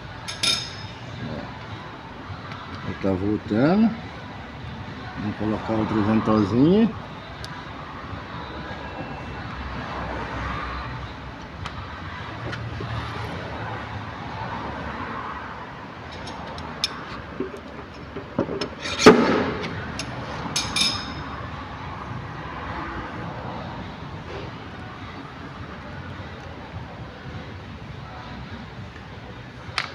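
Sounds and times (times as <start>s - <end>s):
steady background hum: 0.0s - 9.6s.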